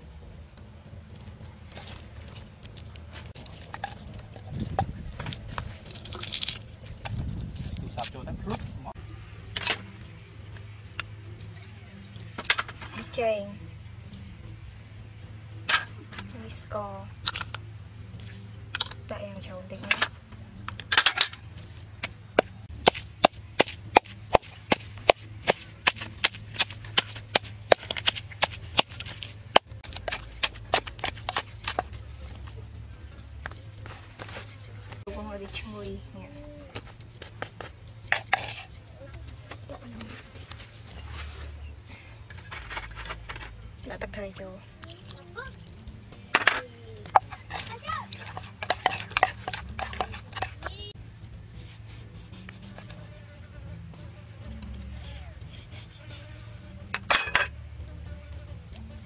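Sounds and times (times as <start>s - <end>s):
chillies snapping into a mortar: 4.8s - 8.2s
pestle pounding in wooden mortar: 22.4s - 32.1s, 47.1s - 50.8s.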